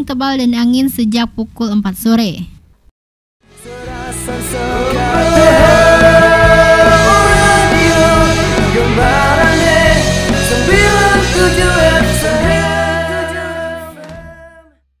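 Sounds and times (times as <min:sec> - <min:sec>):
music with singing: 0:03.4 - 0:14.8.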